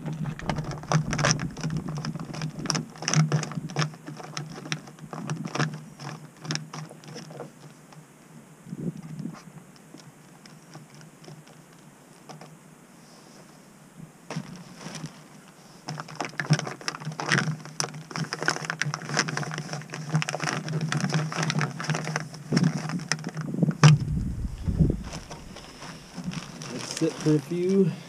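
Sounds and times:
low rumble on microphone: 23.6 - 26.8.

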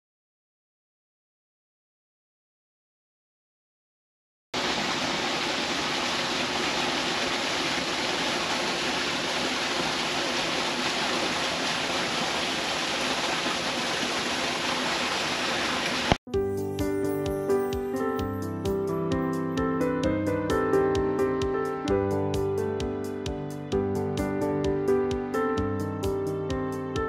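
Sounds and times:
waterfall splashing over rocks: 4.6 - 16.2.

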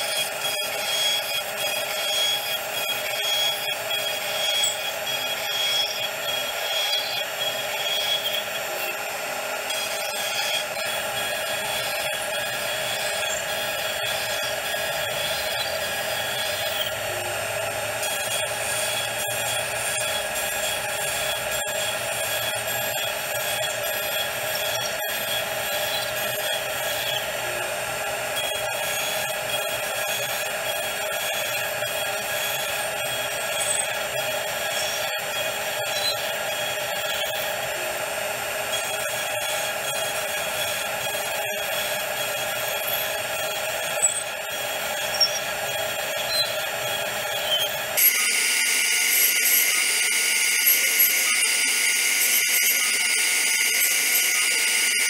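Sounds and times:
bit cutting wood hiss: 0.0 - 27.4, 38.6 - 55.0
router spindle whine: 0.0 - 55.0.

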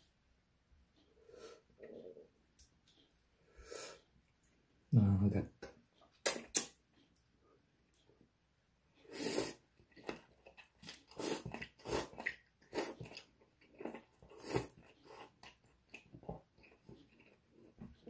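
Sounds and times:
person slurping noodles: 9.1 - 9.6, 10.9 - 13.2, 13.9 - 15.3.

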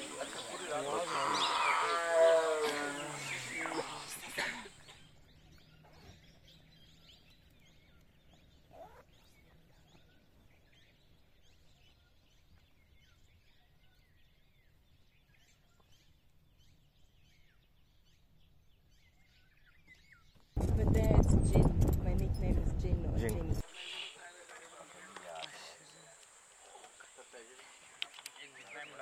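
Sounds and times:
faint bird chirps: 0.0 - 14.5, 23.6 - 29.0.

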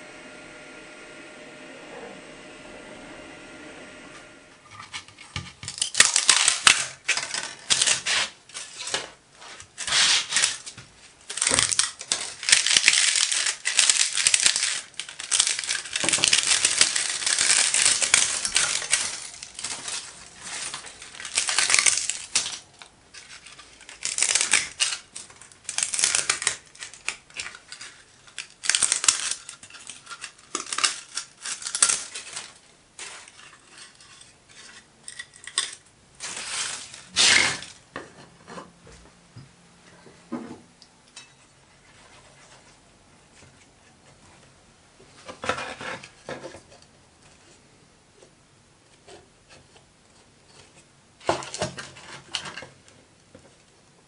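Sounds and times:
plastic snapping and cracking: 5.4 - 9.1, 10.3 - 32.6.

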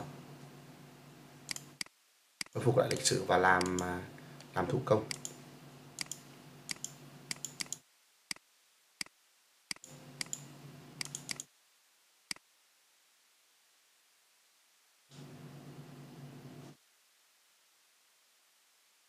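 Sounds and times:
faint electrical hum: 0.0 - 19.0
computer mouse clicking: 1.5 - 3.9, 5.1 - 5.4, 6.0 - 8.4, 9.7 - 11.5.

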